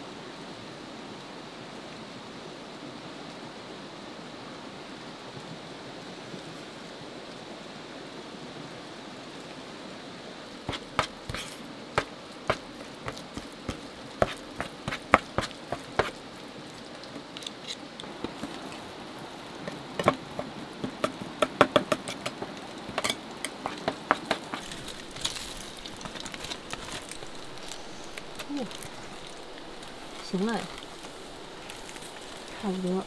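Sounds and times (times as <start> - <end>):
steady hiss: 0.0 - 33.0
foil crinkling: 10.7 - 16.3, 22.4 - 32.8
metal spoon scraping steel bowl: 23.0 - 23.9.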